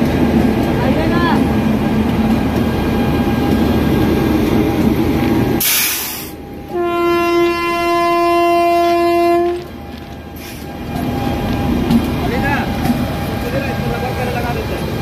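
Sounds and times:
train rumbling: 0.0 - 15.0
train horn: 6.7 - 9.7.

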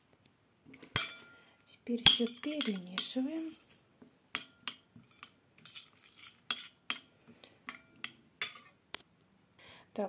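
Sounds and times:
metal spoon clinking in glass bowl: 1.0 - 1.4, 2.0 - 7.1, 7.7 - 8.7.

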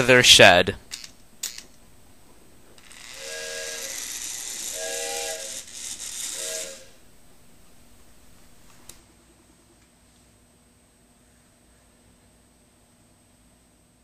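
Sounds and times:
steam locomotive whistle toots: 3.1 - 7.0.

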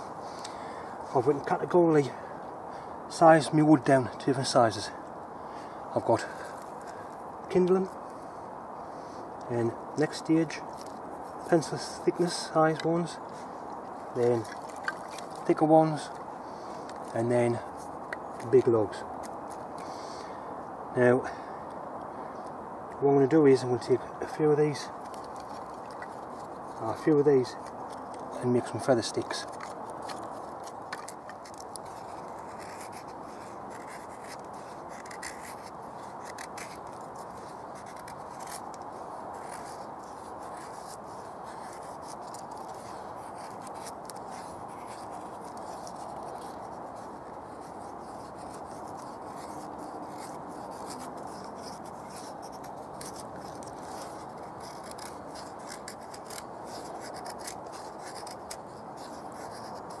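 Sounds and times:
steady background hiss: 0.0 - 60.0
knife scraping wood: 14.4 - 17.1, 24.9 - 60.0.

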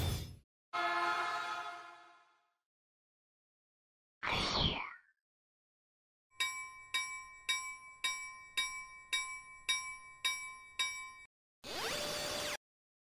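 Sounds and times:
railroad crossing bell ringing: 6.4 - 11.3.

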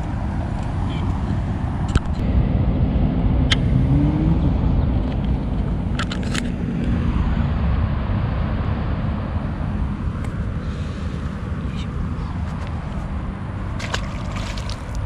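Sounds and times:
passing vehicle engine rumble: 0.0 - 15.0.

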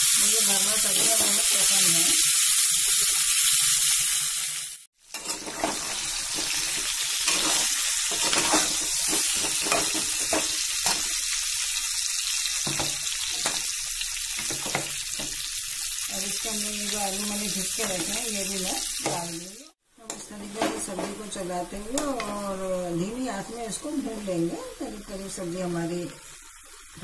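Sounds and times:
vegetables sizzling in a pan: 0.0 - 27.0
spoon scraping a metal pan: 5.1 - 11.2.

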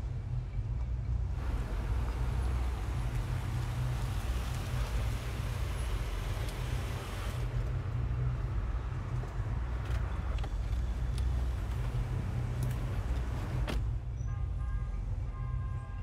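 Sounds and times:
car engine rumble: 0.0 - 14.2
tyres hissing: 1.4 - 7.5.

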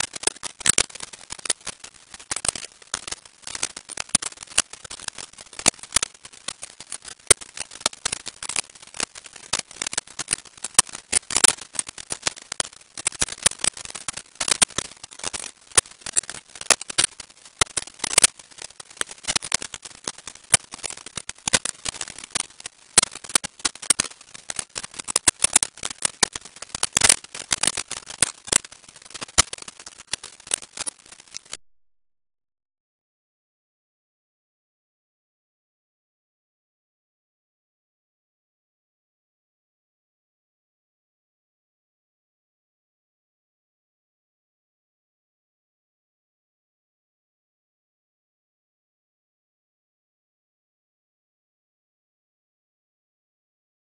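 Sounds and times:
dense crackling clicks: 0.0 - 31.6.

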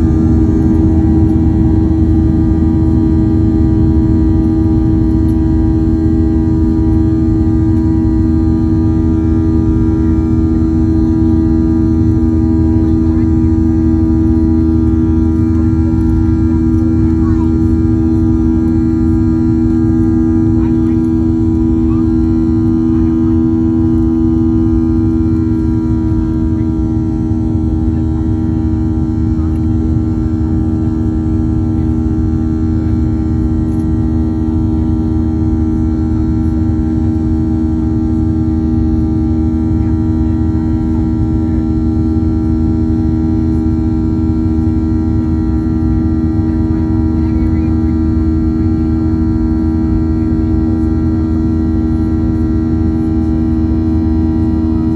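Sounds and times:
airplane cabin engine drone: 0.0 - 54.9.

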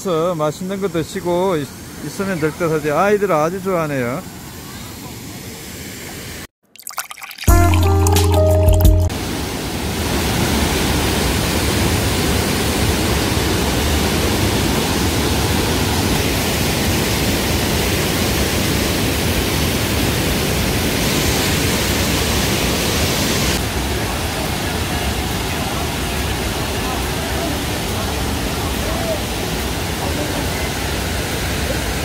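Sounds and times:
water rushing over rapids: 9.1 - 32.0.

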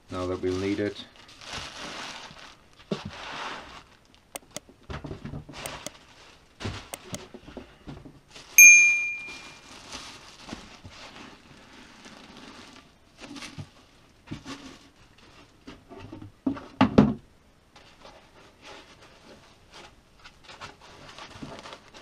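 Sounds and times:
plastic and foam packing rustling: 0.0 - 8.6, 9.6 - 16.8, 17.8 - 22.0
bell ding: 8.6 - 9.6.

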